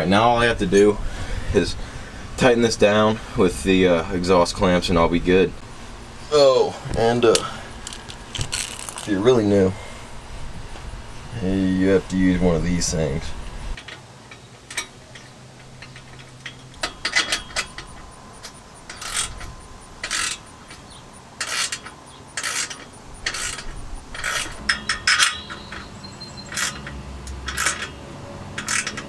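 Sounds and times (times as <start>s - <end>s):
ratchet wrench clicking: 16.8s - 29.0s.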